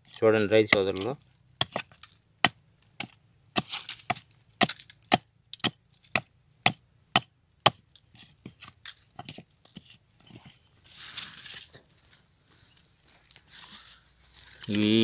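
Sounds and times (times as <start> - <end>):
hand tool chopping wood: 0.0 - 10.4.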